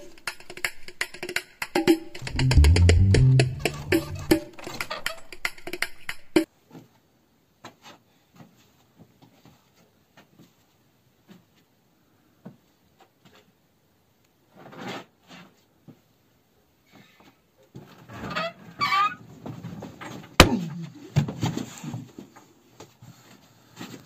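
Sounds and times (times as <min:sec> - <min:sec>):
music with hand percussion: 0:00.0 - 0:06.5.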